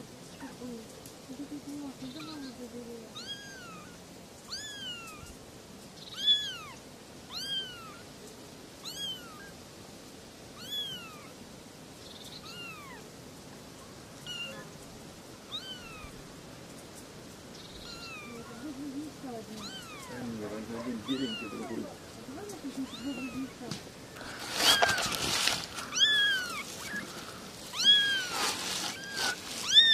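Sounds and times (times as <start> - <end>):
kittens meowing: 2.0 - 5.4, 6.0 - 8.1, 8.8 - 9.6, 10.6 - 11.4, 12.2 - 13.0, 14.2 - 14.8, 15.5 - 16.2, 17.6 - 29.9.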